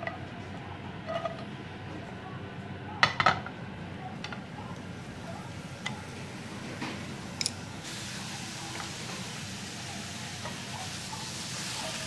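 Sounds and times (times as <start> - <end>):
peppers sizzling in a frying pan: 7.3 - 12.0.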